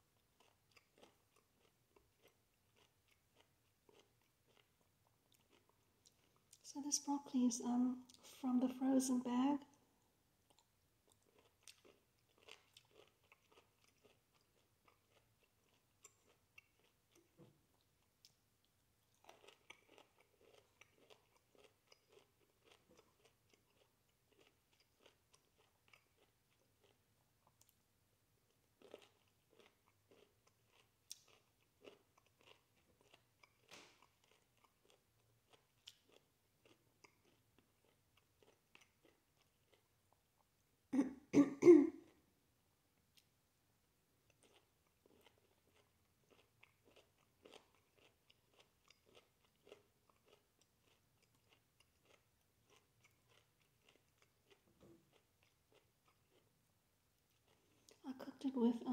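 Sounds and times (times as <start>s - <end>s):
person chewing: 0.2s - 6.6s, 10.4s - 27.8s, 28.5s - 42.2s, 44.2s - 56.6s, 57.2s - 58.0s
person coughing: 41.0s - 42.0s.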